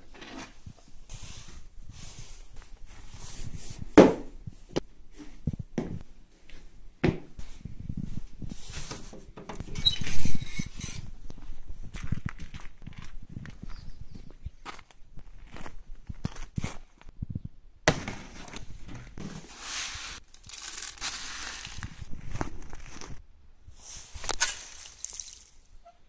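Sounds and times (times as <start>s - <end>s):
footsteps in a house: 2.4s - 10.4s, 11.0s - 16.6s.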